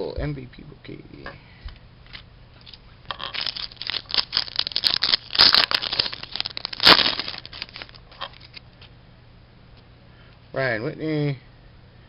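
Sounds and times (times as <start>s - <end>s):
wrapper crinkling and tearing: 3.1s - 8.6s.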